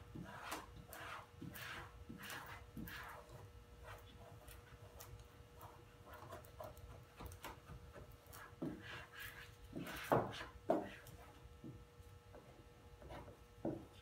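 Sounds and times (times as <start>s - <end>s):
squeegee scraping over vinyl: 0.1s - 11.3s.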